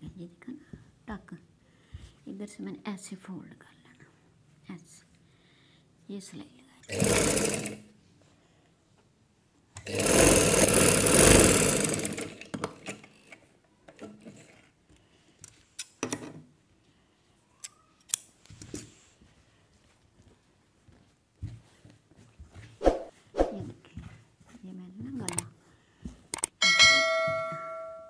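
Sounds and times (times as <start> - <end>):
sewing machine running: 6.9 - 7.8, 9.8 - 13.4.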